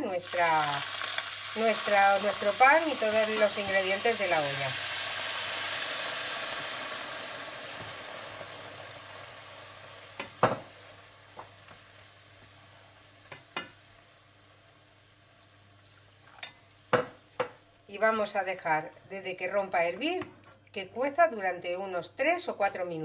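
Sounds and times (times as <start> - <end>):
oil hissing and sizzling: 0.1 - 17.9
wooden spoon knocking on pan: 10.2 - 10.7, 16.9 - 17.6.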